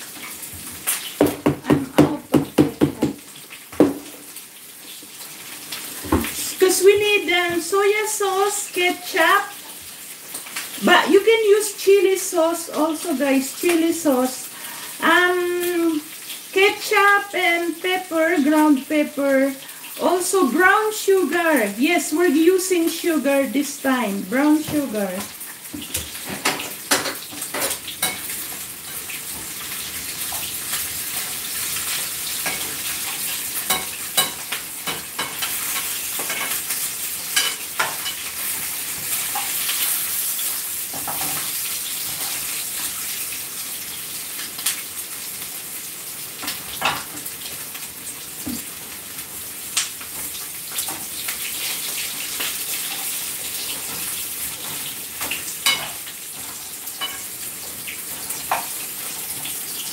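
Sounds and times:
ribs sizzling in a frying pan: 0.0 - 59.9
spatula clicking and scraping pan: 26.1 - 29.6, 31.2 - 40.0, 50.7 - 59.9.

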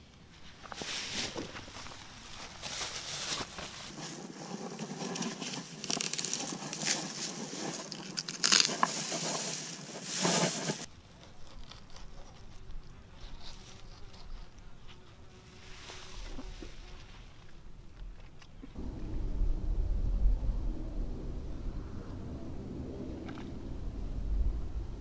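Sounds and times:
clothing and plastic bag rustling: 0.3 - 4.4.

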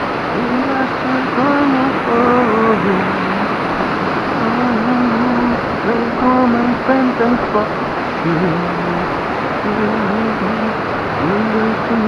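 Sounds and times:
river rapids rushing over rocks: 0.0 - 12.0
man humming: 4.4 - 9.1, 9.7 - 12.0.

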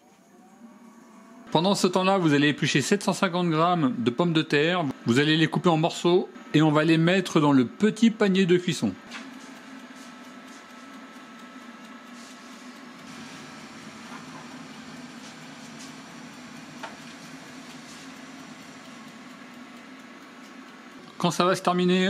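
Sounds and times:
kitchen machine humming: 0.0 - 22.0
faint ticks: 9.3 - 13.0
water boiling hiss: 12.1 - 22.0.

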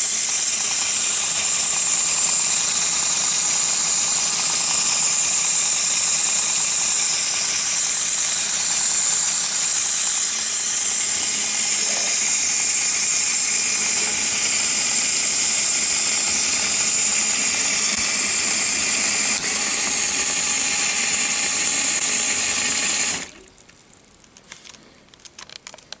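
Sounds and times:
motor and plastic gears whirring: 0.0 - 23.4
water spraying and splashing: 0.0 - 23.9
small clicks: 23.6 - 26.0.

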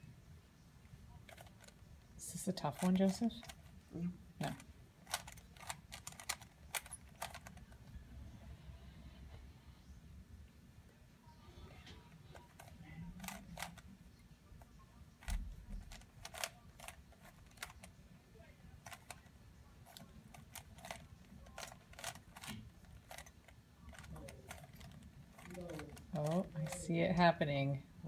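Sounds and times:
plastic cube clicking: 4.4 - 7.7, 12.6 - 13.8, 15.2 - 17.9, 19.9 - 26.8.

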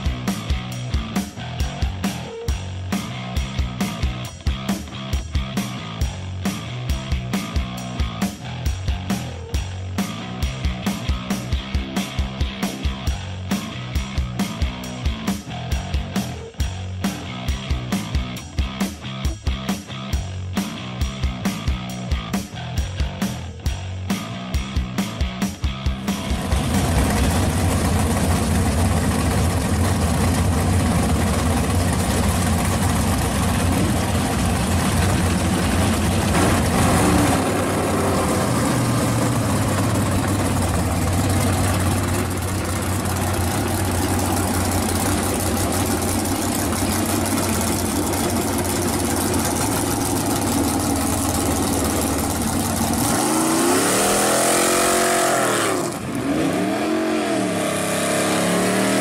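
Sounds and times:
car engine running: 0.0 - 59.0
car engine revving: 25.9 - 59.0.

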